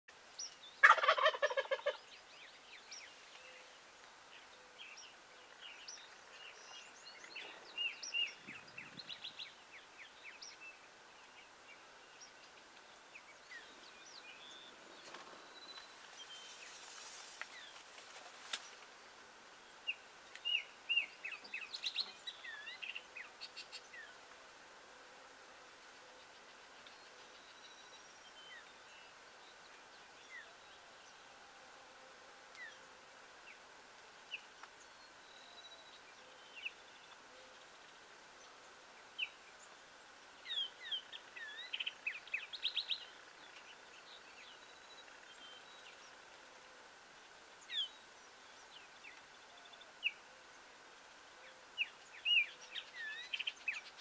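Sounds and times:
small birds chirping: 0.1s - 24.3s, 32.5s - 54.0s
wild turkey gobbling: 0.8s - 2.0s.

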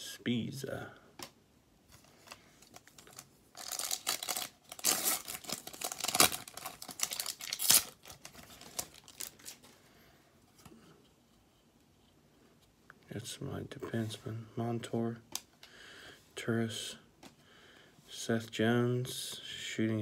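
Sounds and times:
foil wrapper crinkling and tearing: 2.2s - 9.7s.

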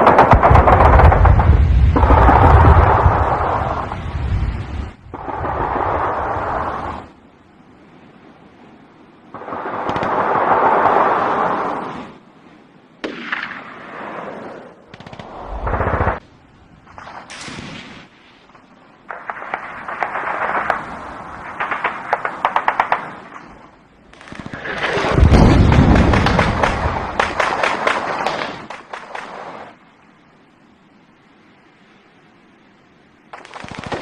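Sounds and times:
rushes of noise: 0.0s - 7.2s
deep booming blast: 25.1s - 27.2s.

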